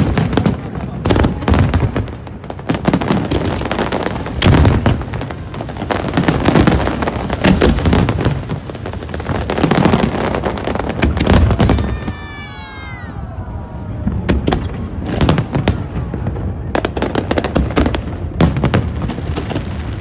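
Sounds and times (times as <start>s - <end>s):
fireworks sharp bangs: 0.0s - 12.6s, 14.0s - 20.0s
deep fireworks booms: 0.0s - 20.0s.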